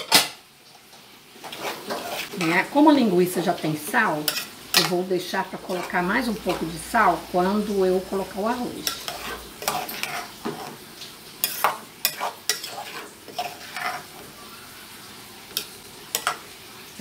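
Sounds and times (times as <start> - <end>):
food sizzling: 0.0 - 17.0
metal spoon scraping a pot: 1.4 - 2.6, 4.2 - 5.0, 5.6 - 6.8, 8.8 - 10.8, 11.4 - 14.3, 15.5 - 16.4.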